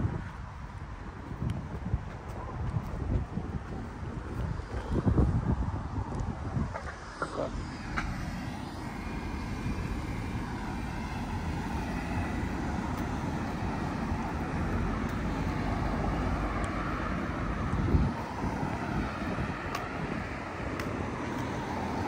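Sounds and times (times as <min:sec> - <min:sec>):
motor vehicle noise: 0:00.0 - 0:22.0.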